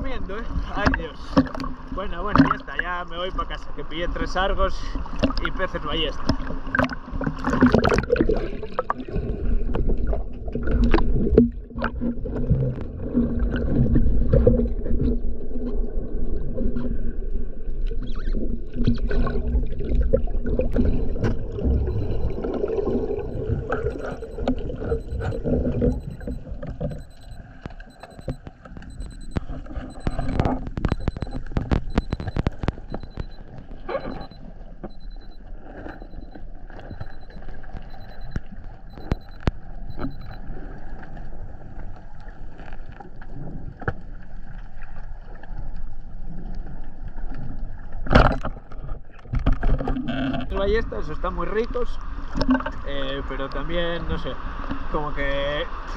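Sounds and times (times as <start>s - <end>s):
muffled underwater rushing water: 0.0s - 55.9s
faint high beep: 20.8s - 40.4s
sharp clicks: 23.4s - 35.4s, 36.0s - 40.4s.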